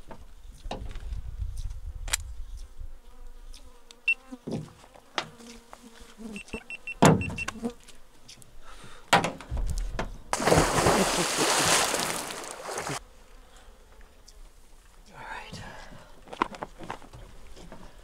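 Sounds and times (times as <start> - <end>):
insect buzzing: 2.3 - 8.8, 10.3 - 15.0.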